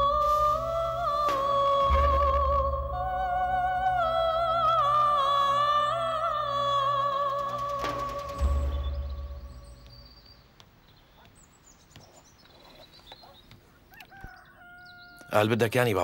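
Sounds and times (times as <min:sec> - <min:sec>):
low drone: 0:00.0 - 0:10.3.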